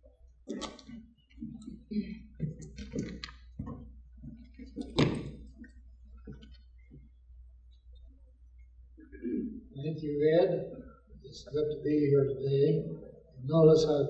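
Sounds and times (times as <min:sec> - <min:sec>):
low steady hum: 0:00.0 - 0:14.0
footsteps on stage: 0:00.5 - 0:07.1.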